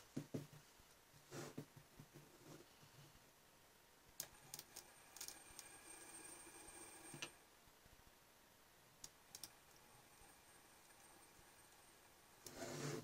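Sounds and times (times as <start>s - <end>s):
faint steady whine: 0.0s - 13.0s.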